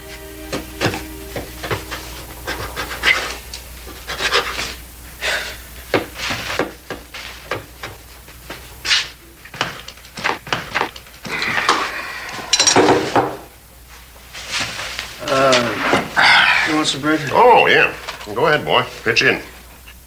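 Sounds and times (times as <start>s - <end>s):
knife sawing through crusty bread: 4.0s - 4.8s.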